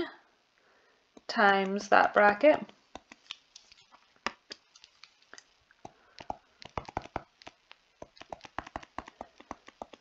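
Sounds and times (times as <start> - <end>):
stylus tapping on tablet: 2.6 - 5.2, 5.8 - 10.0.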